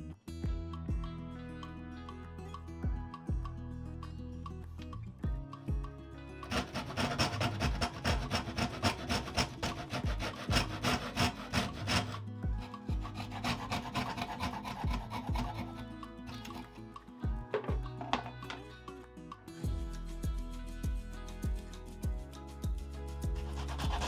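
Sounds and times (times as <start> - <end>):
background music: 0.0 - 24.0
hand saw cutting wood: 6.4 - 16.8, 23.3 - 24.0.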